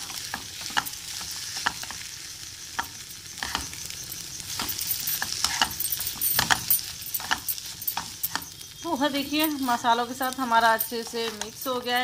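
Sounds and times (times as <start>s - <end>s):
light sizzle: 0.0s - 12.0s
wooden spatula scraping a pan: 4.5s - 8.6s.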